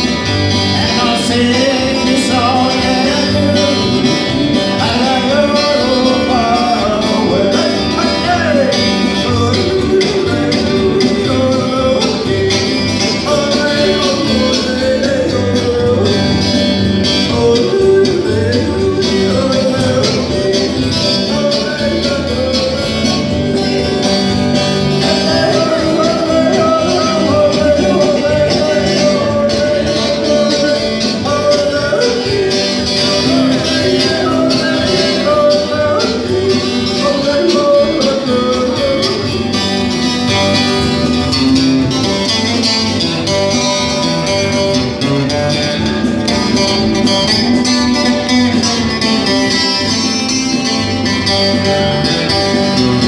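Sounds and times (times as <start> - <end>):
person singing: 0.0 - 41.9
electric guitar: 0.0 - 53.0
keyboard playing: 0.0 - 53.0.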